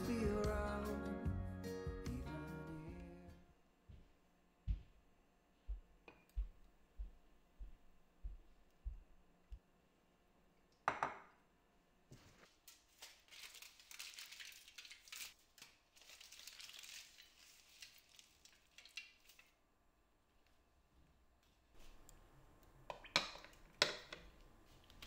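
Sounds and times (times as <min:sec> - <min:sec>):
aluminium foil crinkling: 0:12.4 - 0:19.6.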